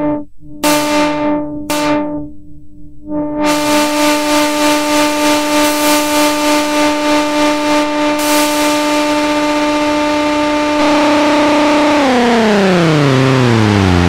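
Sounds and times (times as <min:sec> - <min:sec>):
analog synthesizer note: 0:00.0 - 0:14.0.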